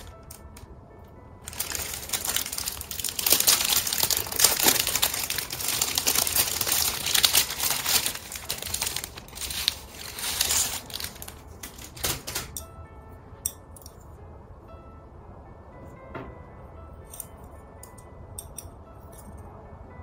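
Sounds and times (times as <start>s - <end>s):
plastic packaging crinkling: 0.0s - 0.7s, 1.4s - 12.6s.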